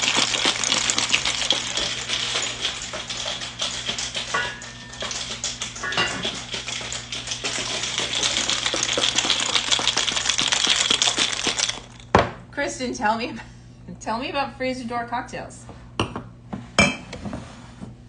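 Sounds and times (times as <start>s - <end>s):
ice cubes rattling in shaker: 0.0s - 12.1s.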